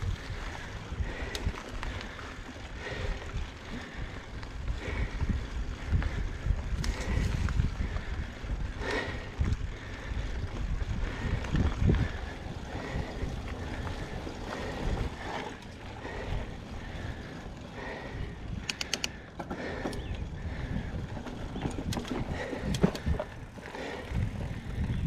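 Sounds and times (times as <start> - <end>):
bike tyre rumble on dirt: 0.0 - 25.0
wind buffeting microphone: 0.0 - 25.0
sharp clicks: 18.6 - 19.2
bike knocks and rattles: 20.8 - 25.0.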